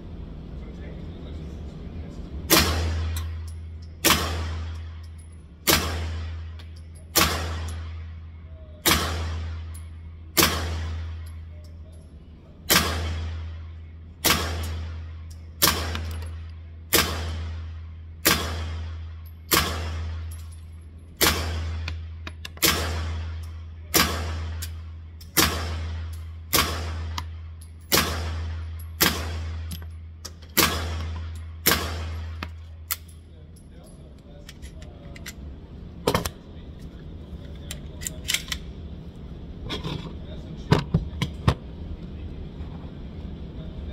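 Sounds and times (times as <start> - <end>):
steady low hum: 0.0 - 43.9
gunshots: 2.5 - 3.4, 4.0 - 5.0, 5.6 - 8.2, 8.8 - 11.2, 12.7 - 20.4, 21.2 - 29.8, 30.5 - 32.6
suppressed pistol shots: 2.5 - 5.0, 5.6 - 8.1, 8.8 - 11.2, 12.7 - 13.6, 14.2 - 20.5, 21.2 - 29.8, 30.4 - 33.1.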